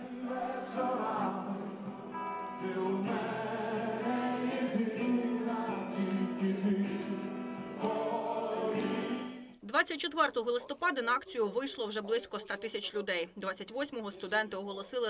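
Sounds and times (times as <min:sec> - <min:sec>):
crowd singing held notes: 0:00.0 - 0:09.6.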